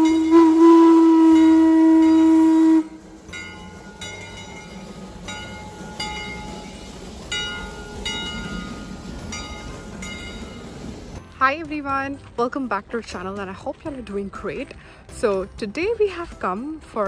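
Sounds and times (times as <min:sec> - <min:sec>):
steam locomotive whistle blast: 0:00.0 - 0:03.8
locomotive low rumble: 0:00.0 - 0:17.0.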